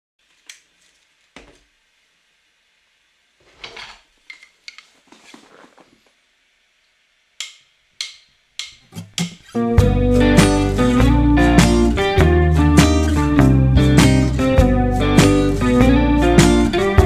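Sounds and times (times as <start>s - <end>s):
rustling: 3.4s - 6.2s.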